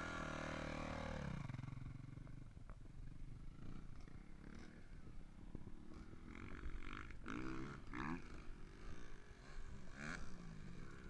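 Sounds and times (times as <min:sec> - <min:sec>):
dirt bike engine revving: 0:00.0 - 0:01.8, 0:05.9 - 0:11.0.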